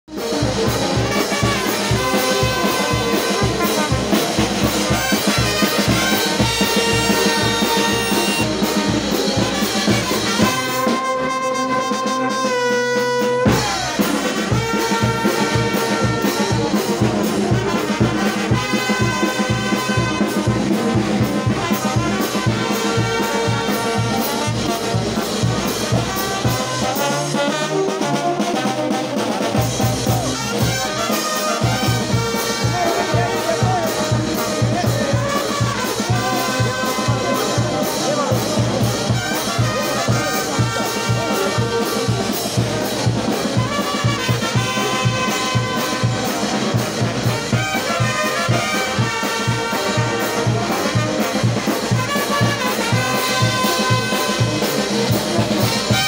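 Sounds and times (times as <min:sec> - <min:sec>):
brass band playing: 0:00.0 - 0:56.0
bass drum beat: 0:29.4 - 0:56.0.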